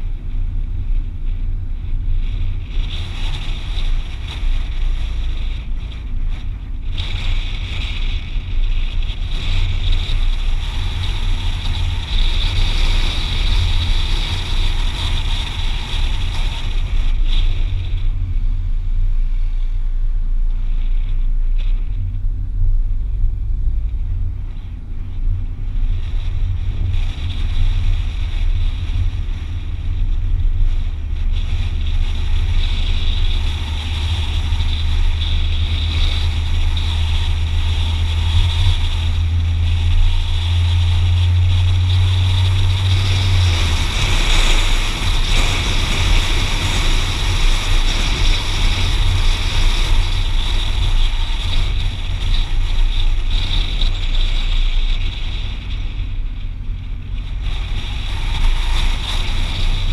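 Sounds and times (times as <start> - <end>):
car engine and tyres drone: 0.0 - 59.9.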